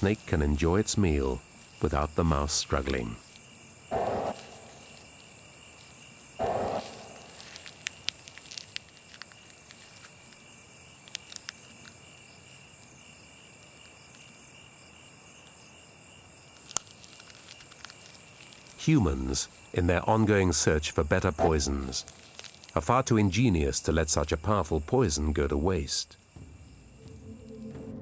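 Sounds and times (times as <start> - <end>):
crickets chirring: 0.0 - 28.0
rustling noises: 4.3 - 12.6, 15.3 - 19.8, 21.2 - 22.8.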